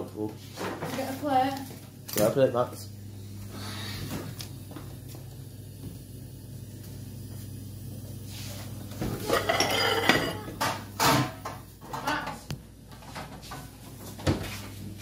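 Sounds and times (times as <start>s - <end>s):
dishes and cutlery clattering: 9.2s - 12.4s.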